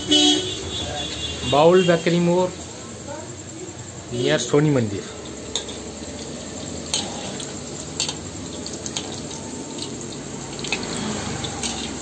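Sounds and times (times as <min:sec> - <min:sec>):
food sizzling in hot oil: 0:00.0 - 0:12.0
spatula clicking against wok: 0:06.8 - 0:12.0.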